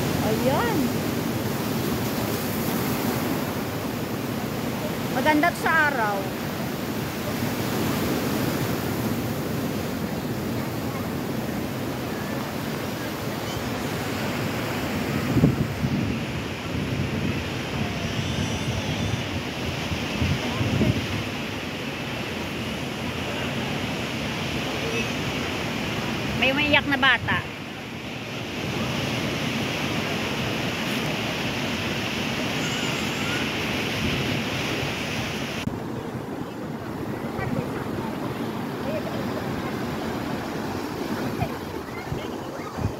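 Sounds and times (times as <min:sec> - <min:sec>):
waves breaking on shore: 0:00.0 - 0:42.9
wind buffeting microphone: 0:14.6 - 0:21.6, 0:35.7 - 0:42.9.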